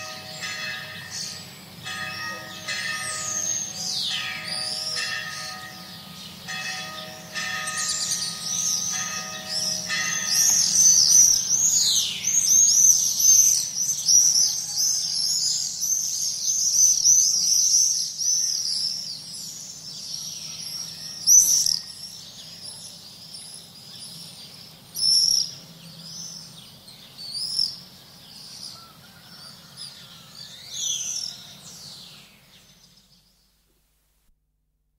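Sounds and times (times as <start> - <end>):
bell tolling: 0.0 - 11.2
swifts screaming: 0.0 - 24.3
faint low town hum: 0.0 - 33.8.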